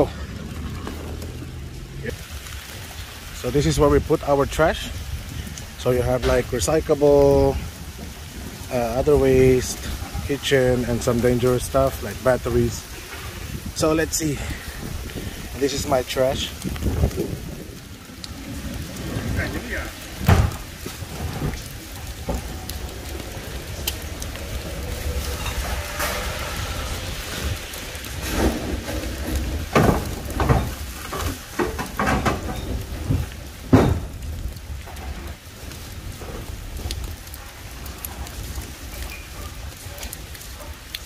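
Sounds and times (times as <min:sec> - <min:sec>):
steady rain: 0:00.0 - 0:41.0
bin hatch knocks and clatters: 0:20.2 - 0:21.5, 0:28.2 - 0:34.2.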